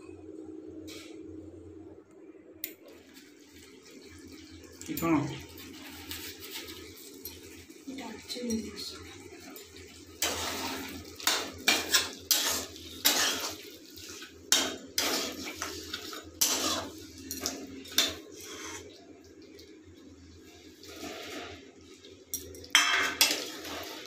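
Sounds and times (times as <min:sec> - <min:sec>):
low steady hum: 0:00.0 - 0:24.0
metal spatula scraping pan: 0:10.2 - 0:18.8.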